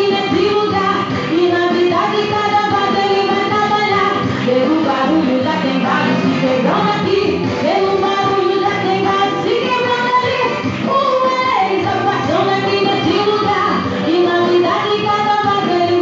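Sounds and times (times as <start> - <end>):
woman singing worship song: 0.0 - 16.0.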